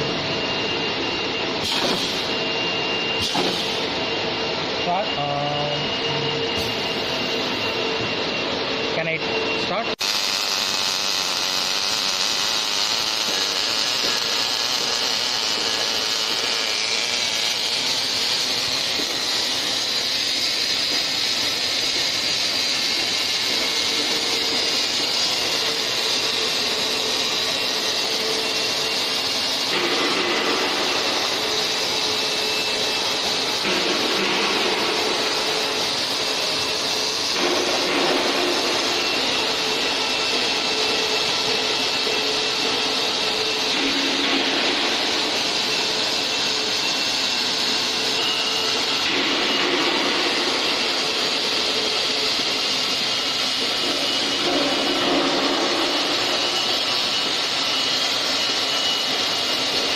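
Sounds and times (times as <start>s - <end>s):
welding arc hissing: 1.6s - 2.4s, 3.2s - 4.0s, 6.6s - 7.7s, 10.0s - 59.9s.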